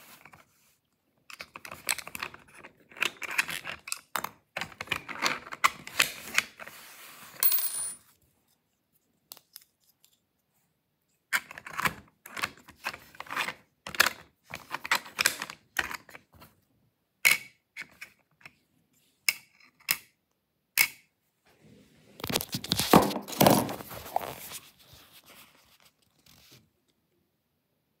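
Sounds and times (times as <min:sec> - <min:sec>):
plastic parts clicking and scraping: 0:01.1 - 0:06.7, 0:11.3 - 0:16.5.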